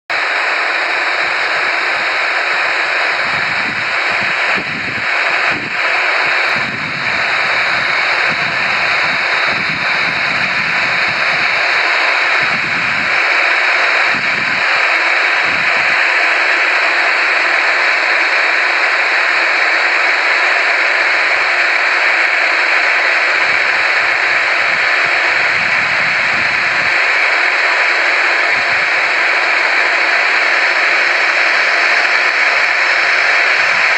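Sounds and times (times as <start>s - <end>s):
jet engines rushing: 0.2s - 33.9s
wind buffeting microphone: 3.2s - 11.7s, 12.4s - 13.2s.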